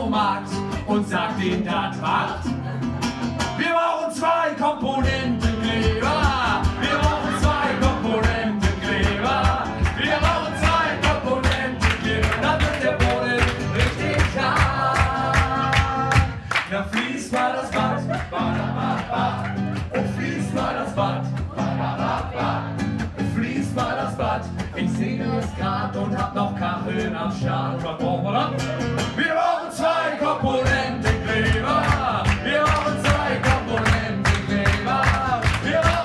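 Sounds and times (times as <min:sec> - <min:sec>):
person singing: 0:03.4 - 0:21.2
acoustic guitar strumming: 0:04.8 - 0:16.7, 0:17.7 - 0:36.0.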